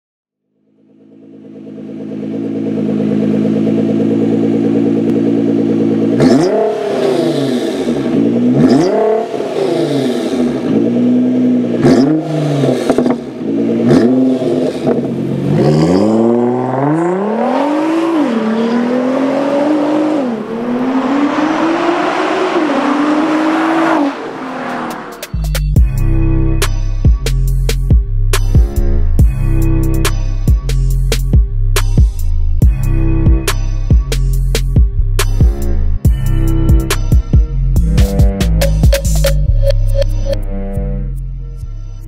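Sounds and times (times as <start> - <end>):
car engine idling: 0.5 - 8.6, 12.5 - 17.4
car accelerating past: 11.8 - 25.3.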